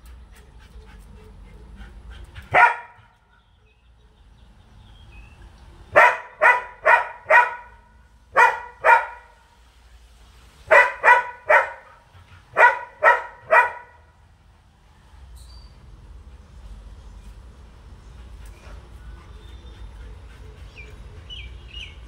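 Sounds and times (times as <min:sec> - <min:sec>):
dog barking: 0:02.5 - 0:03.2, 0:05.9 - 0:09.4, 0:10.7 - 0:14.1.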